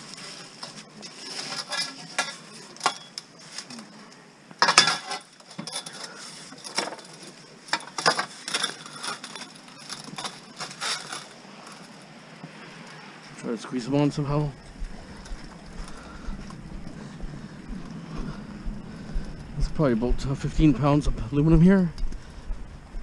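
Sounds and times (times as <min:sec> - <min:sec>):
metal pipes clanking and scraping: 0:04.6 - 0:11.8.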